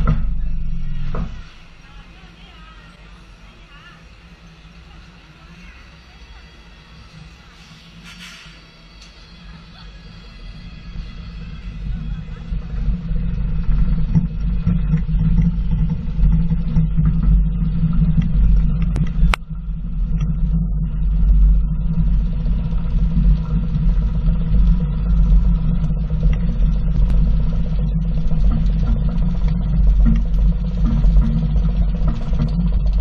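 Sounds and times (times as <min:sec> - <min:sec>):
faint steady hum: 0:00.0 - 0:33.0
roller coaster rumbling: 0:00.0 - 0:33.0.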